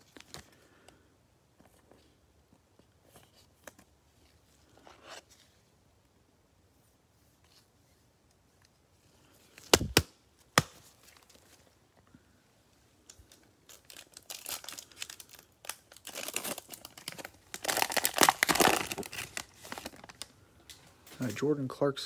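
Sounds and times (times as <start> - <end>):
foil wrapper crinkling and tearing: 13.1 - 20.8.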